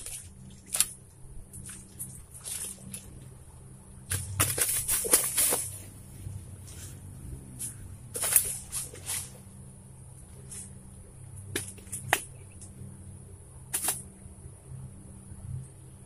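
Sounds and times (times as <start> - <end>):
clicks and rustles in bushes: 0.0 - 3.4, 4.1 - 7.0, 7.6 - 9.5
faint low hum: 0.0 - 16.0.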